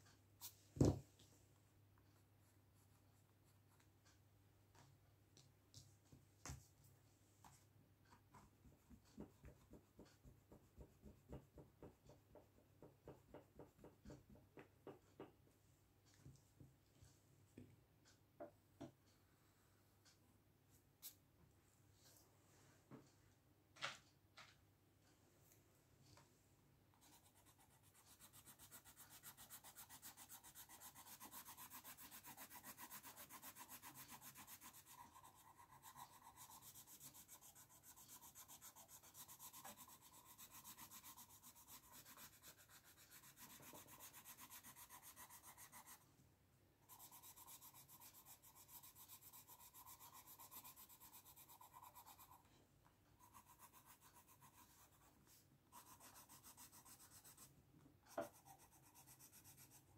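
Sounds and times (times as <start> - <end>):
pencil scratching on paper: 8.3 - 15.3, 26.9 - 46.0, 46.8 - 52.5, 53.2 - 57.5, 58.1 - 59.9.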